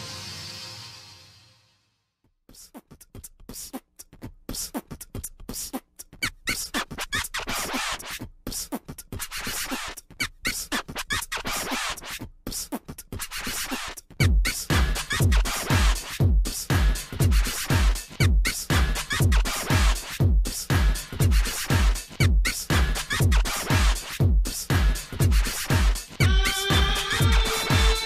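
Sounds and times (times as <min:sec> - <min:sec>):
beatbox-like vocal hits: 0:02.5 - 0:28.0
heavy bass beat: 0:13.8 - 0:28.0.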